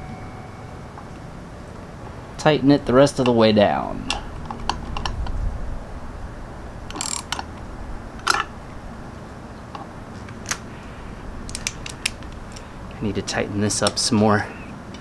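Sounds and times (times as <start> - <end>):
socket ratchet clicking: 6.9 - 7.5, 11.4 - 12.6.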